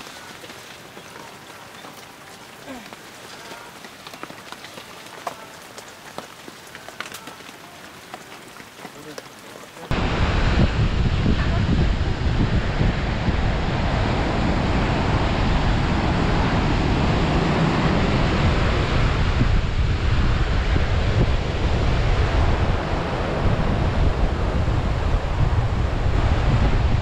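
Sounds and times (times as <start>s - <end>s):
ocean surf breaking on beach: 0.0s - 6.0s, 8.6s - 27.0s
wind buffeting microphone: 9.9s - 27.0s.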